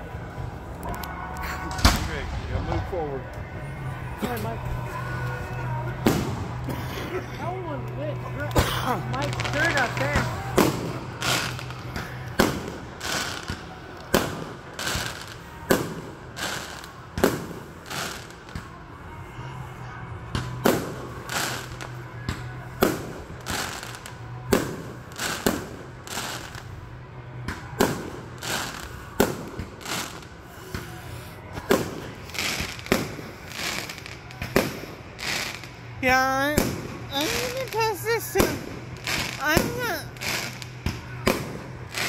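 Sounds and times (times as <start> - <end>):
firework shells bursting: 9.3 - 18.5, 36.6 - 42.0.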